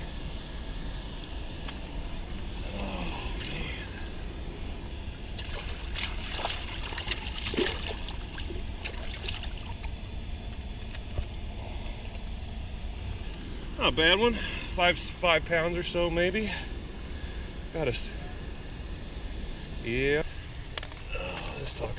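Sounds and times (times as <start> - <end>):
fish splashing in water: 5.3 - 9.9.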